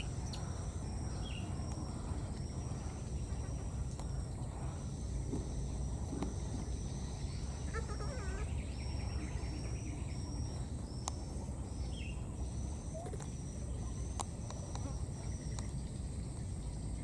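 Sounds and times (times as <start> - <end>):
high insect drone: 0.0 - 17.0
insect chirps: 0.0 - 17.0
faint squeaks: 7.5 - 10.1.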